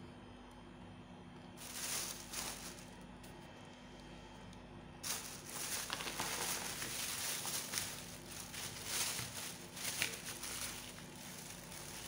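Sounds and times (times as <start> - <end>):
steady low hum: 0.0 - 12.0
rustling handling noise: 1.6 - 3.4, 5.0 - 12.0.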